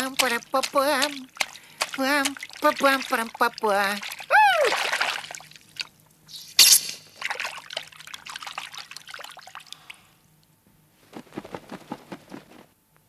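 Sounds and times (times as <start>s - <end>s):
splashing steps through water: 0.0s - 5.9s
water trickling: 0.0s - 6.3s, 7.1s - 10.1s
cartoon water splashing: 0.0s - 9.8s.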